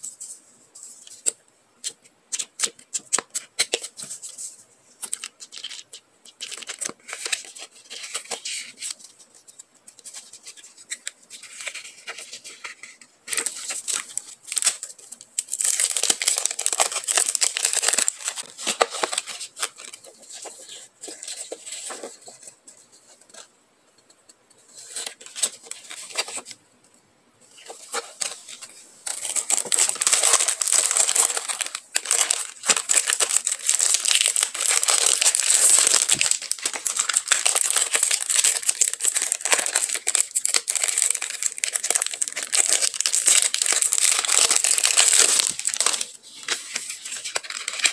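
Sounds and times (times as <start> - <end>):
plastic packaging crinkling: 10.0 - 22.5, 27.5 - 47.9.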